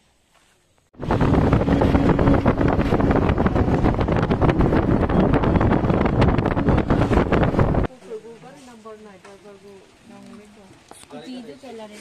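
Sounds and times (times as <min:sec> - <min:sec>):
wind buffeting microphone: 0:01.0 - 0:07.9.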